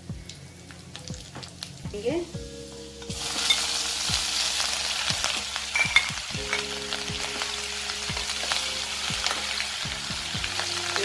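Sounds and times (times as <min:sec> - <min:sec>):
ginger sizzling in oil: 0:00.0 - 0:11.0.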